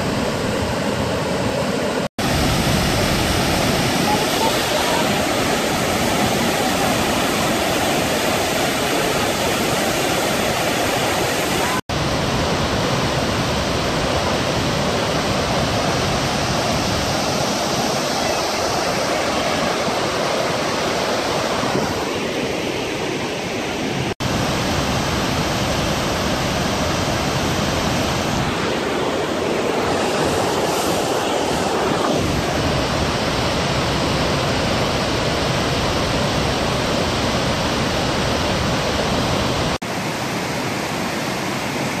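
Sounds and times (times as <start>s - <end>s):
waterfall and rapids rushing: 0.0s - 42.0s.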